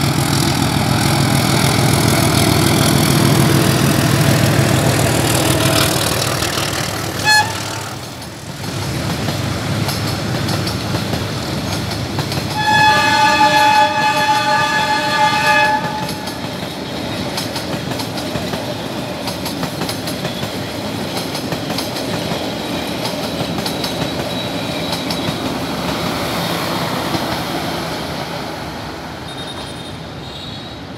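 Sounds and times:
train wheels rumbling and clattering: 0.0s - 30.2s
locomotive horn chord: 6.9s - 8.1s, 12.6s - 16.5s
short horn toot: 7.2s - 8.0s, 12.6s - 16.3s.

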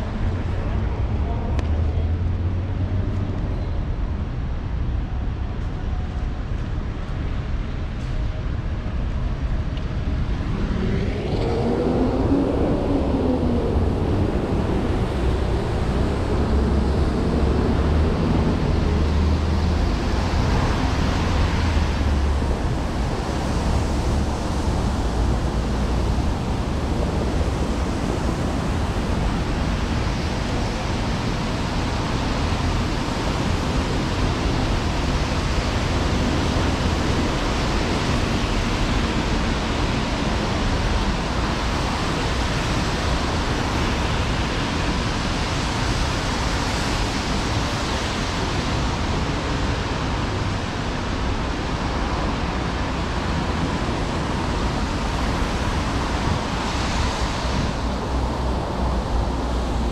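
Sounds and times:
city road traffic: 0.0s - 59.9s
vehicle engine passing: 10.3s - 29.8s.

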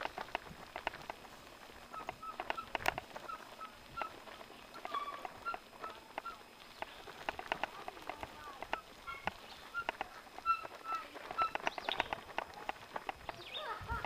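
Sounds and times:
bike rattling and clicking: 0.0s - 14.0s
short high squeaks: 4.8s - 6.4s, 8.8s - 12.1s.

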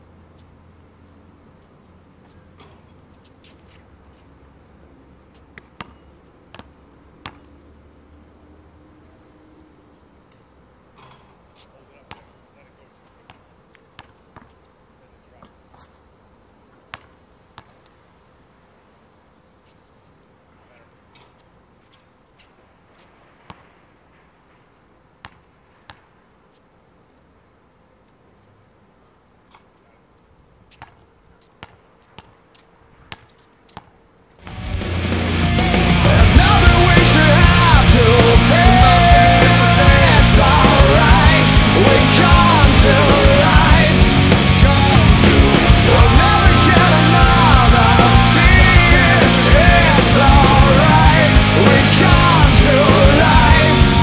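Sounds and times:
steady background noise: 0.0s - 54.0s
basketball bouncing on asphalt: 5.3s - 7.5s, 12.0s - 12.3s, 13.1s - 14.7s, 16.7s - 17.9s, 23.4s - 23.7s, 25.2s - 26.1s, 30.7s - 34.6s.

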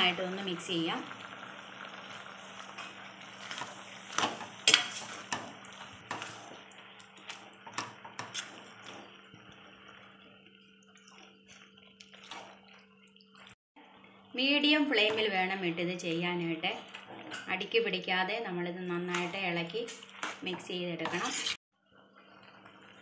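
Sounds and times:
ladle scraping metal pan: 3.4s - 5.5s, 20.1s - 21.6s.

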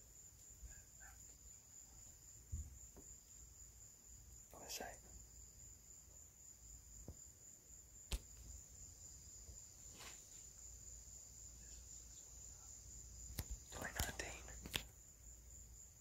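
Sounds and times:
crickets trilling: 0.0s - 16.0s
soft rustle: 9.5s - 10.8s, 13.4s - 15.0s.

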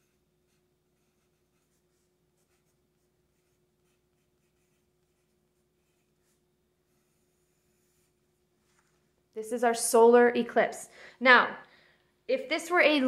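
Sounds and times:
pencil scratching on paper: 0.0s - 9.0s
faint steady hum: 0.0s - 13.0s.

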